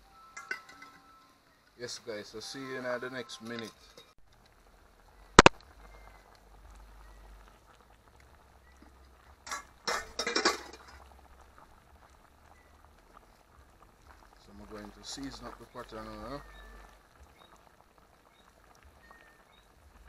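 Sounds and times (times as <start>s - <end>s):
metal pot and lid clinking: 0.3s - 1.1s, 9.4s - 11.0s.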